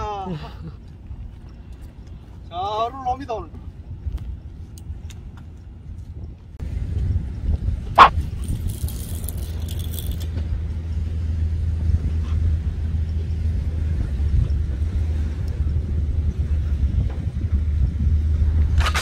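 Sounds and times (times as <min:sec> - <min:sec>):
wind buffeting microphone: 0:00.0 - 0:19.0.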